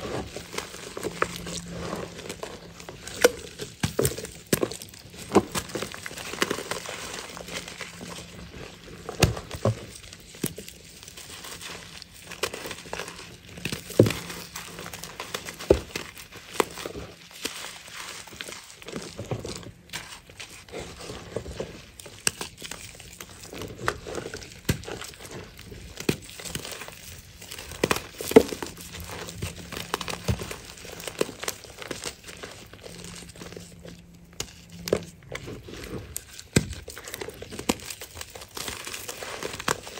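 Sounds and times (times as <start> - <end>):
chalk crunching and crackling: 0.0 - 39.9
chalk chunks snapping: 22.0 - 39.9.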